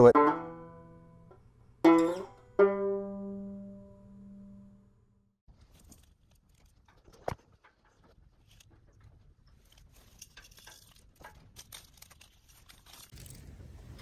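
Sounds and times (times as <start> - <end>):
plucked-string jingle: 0.0 - 4.8.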